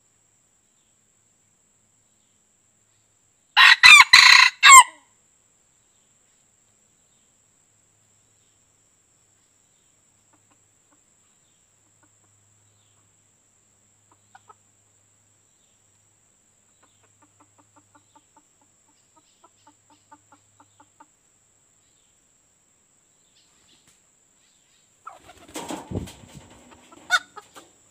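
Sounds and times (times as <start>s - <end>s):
rooster wing flapping: 25.1s - 27.7s.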